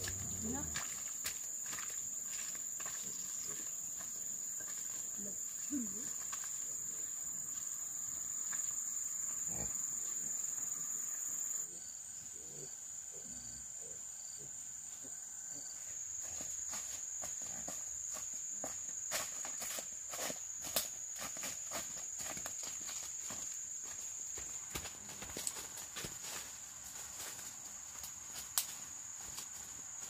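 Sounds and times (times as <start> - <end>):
insects droning: 0.0 - 30.0.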